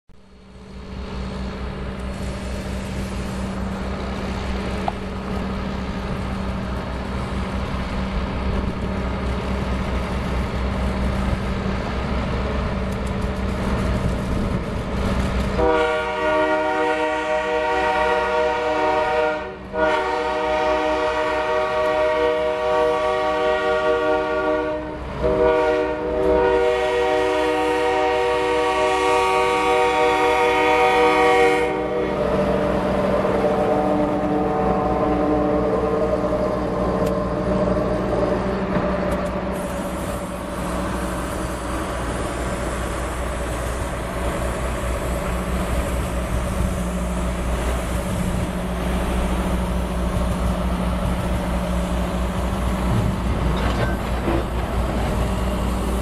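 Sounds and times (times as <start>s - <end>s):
diesel locomotive engine rumbling: 0.1s - 56.0s
train air horn blasts: 15.6s - 38.3s.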